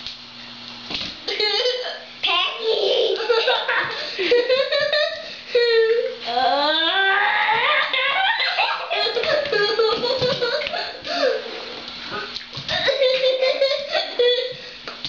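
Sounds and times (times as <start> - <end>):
child laughing and giggling: 1.3 - 11.4, 12.7 - 14.7
child squealing: 5.8 - 9.3.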